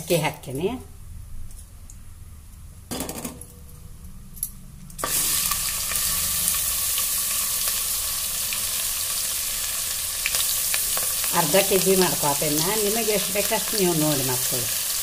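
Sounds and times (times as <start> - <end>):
rice sizzling in hot fat: 5.0 - 15.0.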